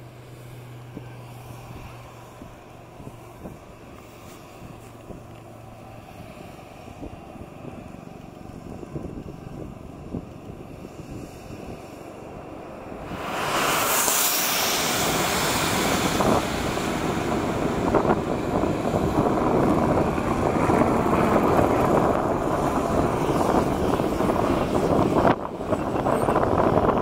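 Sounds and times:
jet engines rumbling: 0:00.0 - 0:27.0.

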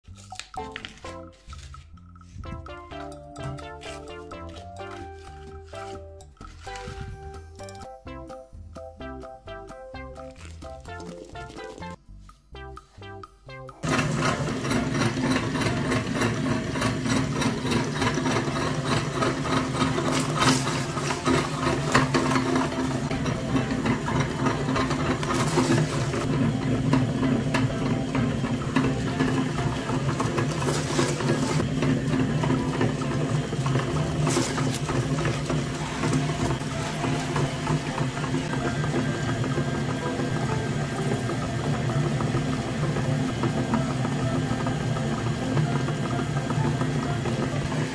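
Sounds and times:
electric meat grinder running: 0:13.8 - 0:47.9
crackles of crushed cones: 0:19.7 - 0:26.3, 0:29.2 - 0:38.5.

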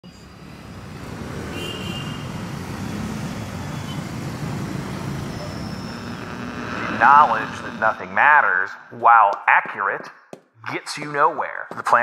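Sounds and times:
city street traffic: 0:00.0 - 0:06.9
brief high tone: 0:05.1 - 0:08.4.

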